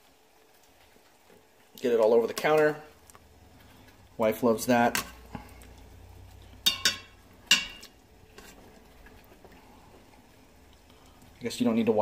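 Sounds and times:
tongs clinking on metal pot: 0:06.6 - 0:07.9.

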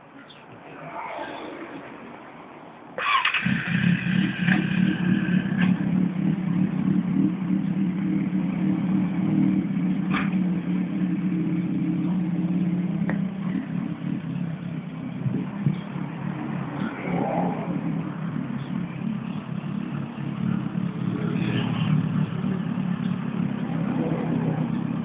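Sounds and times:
motorcycle starter whine: 0:03.0 - 0:05.9
motorcycle engine idling: 0:03.1 - 0:17.0, 0:17.7 - 0:25.0.

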